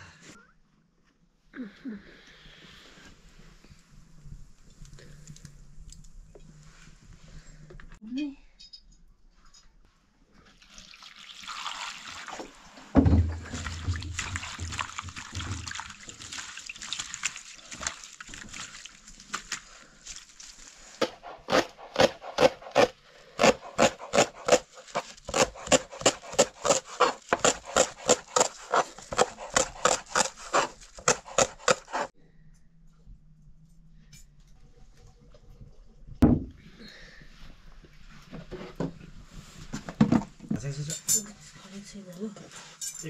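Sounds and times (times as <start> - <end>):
water trickling and splashing: 10.4 - 21.0
thump: 13.0 - 14.1, 36.2 - 36.6
knife chopping on plastic board: 21.0 - 32.1.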